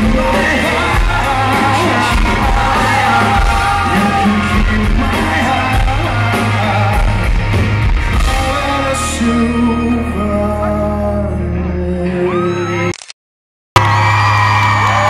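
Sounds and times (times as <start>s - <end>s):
drums: 0.0s - 11.1s
rock band playing live: 0.0s - 12.8s
man singing into microphone: 0.0s - 12.9s.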